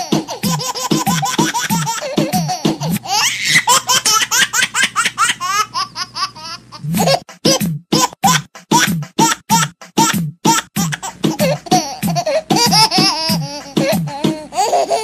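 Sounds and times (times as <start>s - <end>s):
background music beat: 0.0s - 3.2s, 6.6s - 15.0s
child laughing: 0.0s - 15.0s.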